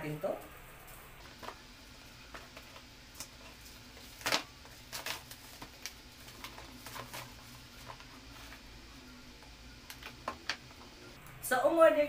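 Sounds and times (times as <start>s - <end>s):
plastic wrapping crinkling: 1.2s - 10.8s.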